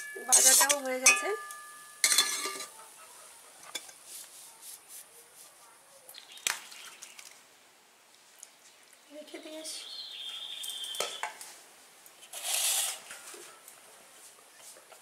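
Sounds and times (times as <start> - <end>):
metal dishes clattering: 0.0 - 2.7.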